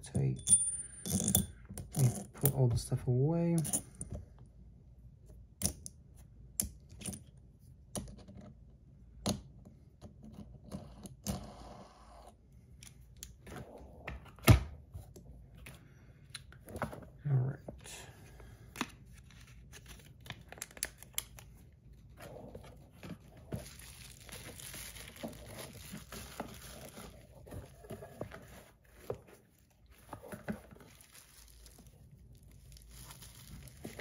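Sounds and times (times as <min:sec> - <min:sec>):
plastic bag crinkling: 0:22.4 - 0:28.2, 0:29.8 - 0:34.0.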